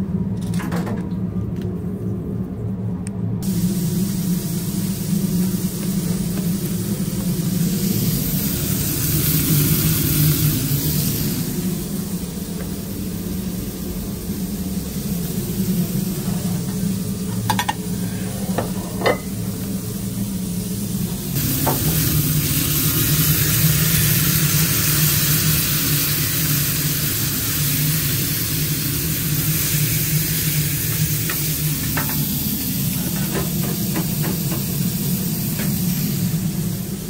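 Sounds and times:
steady low hum: 0:00.0 - 0:37.0
burger patties sizzling on griddle: 0:03.4 - 0:18.3, 0:19.1 - 0:37.0.

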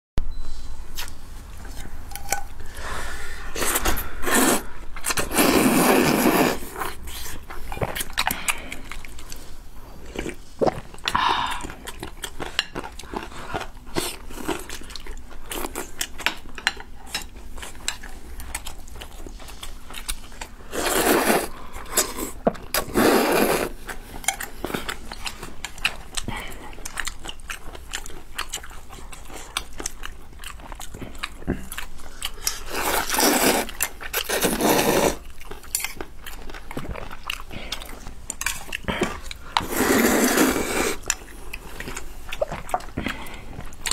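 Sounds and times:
noisy slurps of noodles: 0:03.6 - 0:06.7, 0:20.7 - 0:23.8, 0:32.7 - 0:35.2, 0:39.6 - 0:41.0
wet chewing and smacking: 0:06.7 - 0:20.6, 0:23.8 - 0:39.7, 0:40.4 - 0:43.9.

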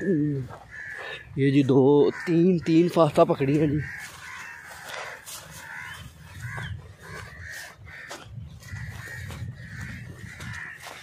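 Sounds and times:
crows cawing: 0:00.0 - 0:11.0.

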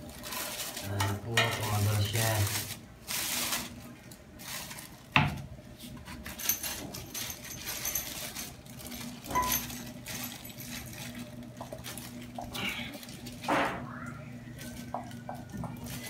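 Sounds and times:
plastic wrapping rustling: 0:00.0 - 0:16.0
metal parts clinking: 0:06.3 - 0:10.9.

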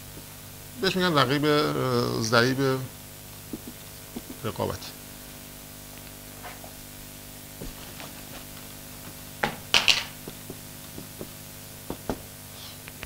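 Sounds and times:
room hum: 0:00.0 - 0:13.0
marker pen writing on whiteboard: 0:03.6 - 0:04.4.

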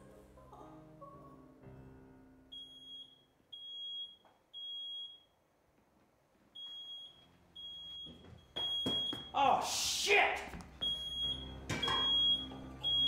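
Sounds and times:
soft piano music: 0:00.0 - 0:02.8, 0:10.6 - 0:13.0
smoke alarm beeps: 0:02.5 - 0:05.4, 0:06.6 - 0:09.4, 0:10.8 - 0:13.0.

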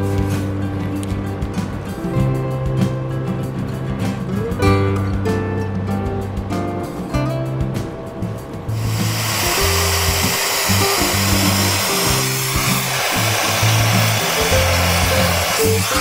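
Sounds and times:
background music with bass line: 0:00.0 - 0:16.0
gas torch hissing roar: 0:08.7 - 0:16.0.

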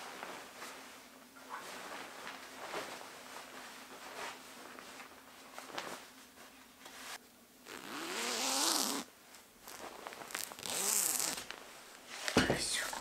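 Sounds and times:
bedding fabric rustling: 0:00.0 - 0:13.0
zipper being pulled: 0:07.7 - 0:11.6.

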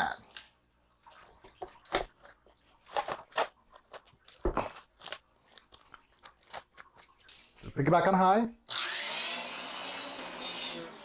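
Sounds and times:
plastic cling wrap crinkling: 0:00.3 - 0:07.7.

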